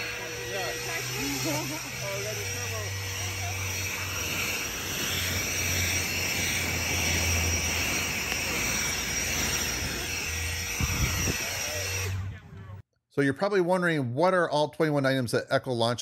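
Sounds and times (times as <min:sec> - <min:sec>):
leaf blower rushing air: 0:00.0 - 0:12.5
electric fan whine: 0:00.0 - 0:12.8.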